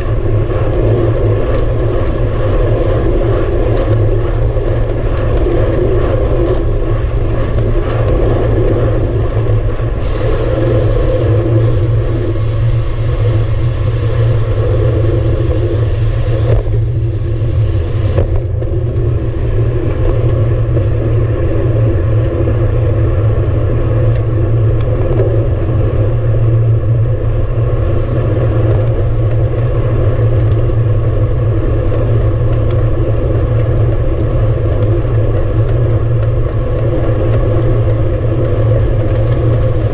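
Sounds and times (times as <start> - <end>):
tyre noise on asphalt: 0.0 - 23.6
wind buffeting microphone: 0.0 - 39.9
bright hiss: 10.0 - 18.4.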